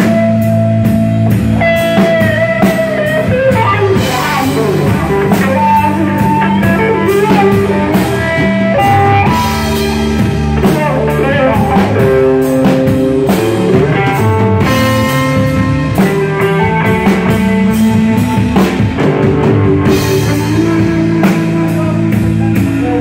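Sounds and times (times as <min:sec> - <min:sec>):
bass guitar: 0:00.0 - 0:23.0
drum kit with cymbals: 0:00.0 - 0:23.0
electric guitar: 0:00.0 - 0:23.0.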